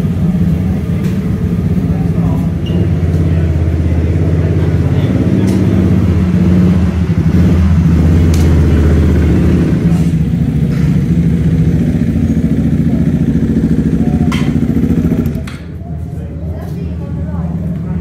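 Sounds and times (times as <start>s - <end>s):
racing motorcycle engine running: 0.0s - 18.0s.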